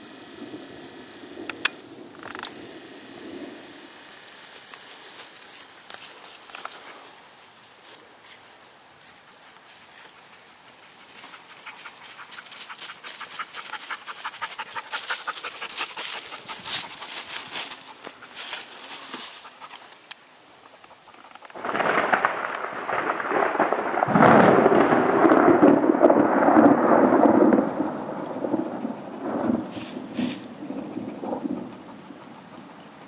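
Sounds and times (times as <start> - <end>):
dog panting: 10.1 - 20.0, 30.8 - 33.0.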